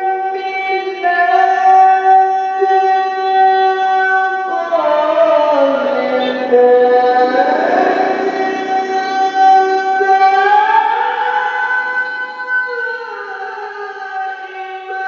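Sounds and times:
man reciting melodically: 1.2 - 14.9.

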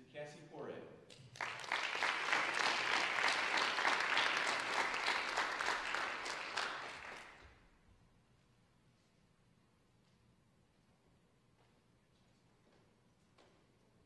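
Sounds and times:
audience applause: 1.3 - 7.5.

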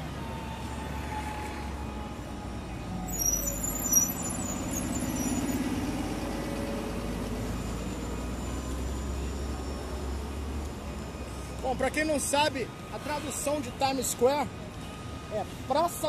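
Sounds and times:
city bus engine drone: 0.0 - 16.0
street traffic: 0.0 - 16.0
high-pitched squeal: 3.1 - 6.2.

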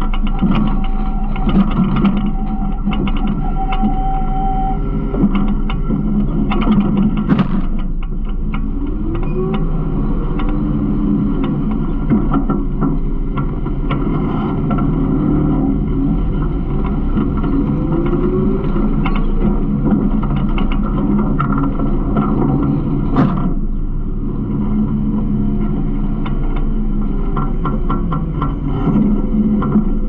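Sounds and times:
garbage truck engine and hydraulic hum: 0.0 - 30.0
metal rattling and clanking: 5.2 - 8.6.

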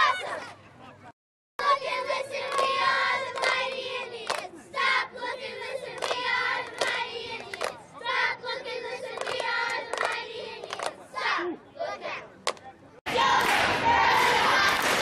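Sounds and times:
girls chanting in unison: 1.6 - 12.3, 13.1 - 15.0
hand claps: 3.3 - 3.6, 4.2 - 4.5, 6.0 - 7.8, 9.2 - 11.0, 12.5 - 12.7.

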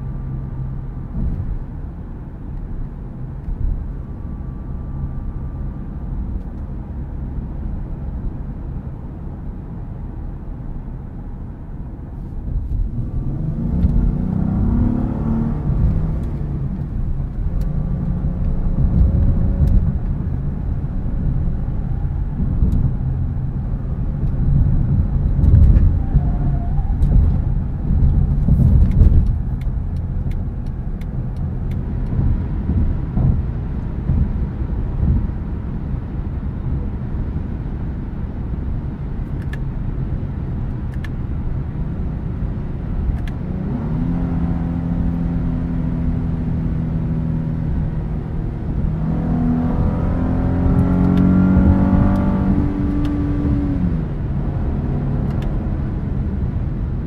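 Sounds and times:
road rumble: 0.0 - 57.0
car engine accelerating: 12.3 - 57.0.

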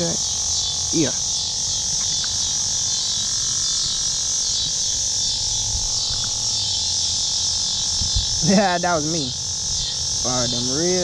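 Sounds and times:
high-pitched insect chorus: 0.0 - 11.0
microphone handling rumble: 7.6 - 9.9.

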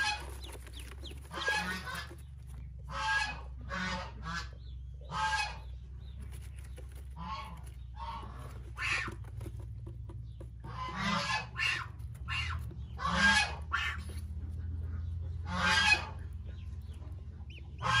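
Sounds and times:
waterfowl honking: 1.2 - 2.2, 2.8 - 5.7, 10.7 - 14.2, 15.4 - 16.4, 17.5 - 18.0.

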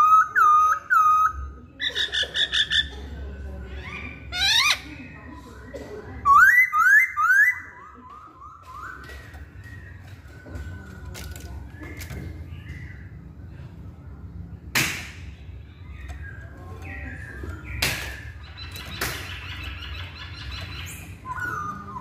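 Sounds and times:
bird singing whistled phrases: 6.3 - 11.0, 19.9 - 22.0.

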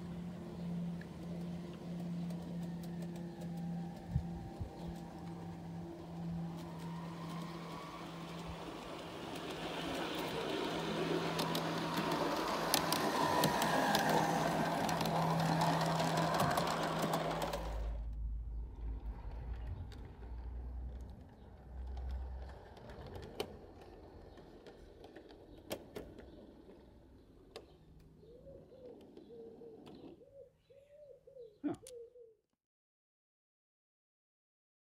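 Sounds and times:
electric motor hum: 0.0 - 25.5
wheel rumble: 0.0 - 30.2.

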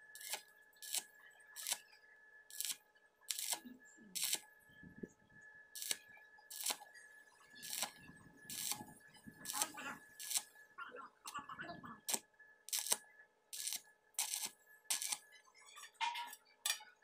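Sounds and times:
welding arc crackling: 0.0 - 1.9, 2.5 - 4.5, 5.8 - 6.9, 7.5 - 10.5, 11.9 - 15.2.

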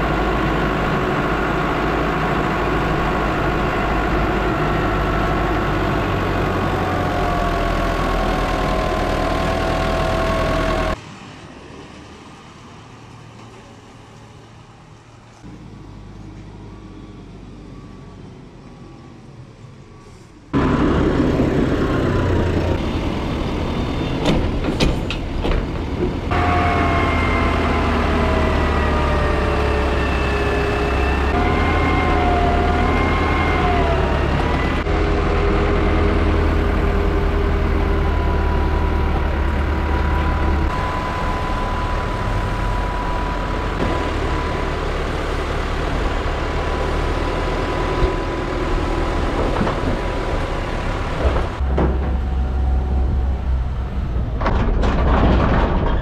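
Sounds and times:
tractor diesel engines running: 0.0 - 56.0
wavering whining tone: 36.9 - 47.0.

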